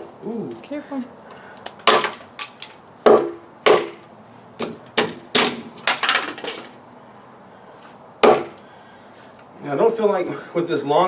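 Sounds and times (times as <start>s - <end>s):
tomahawk chopping wood: 1.8s - 6.6s, 8.2s - 8.6s.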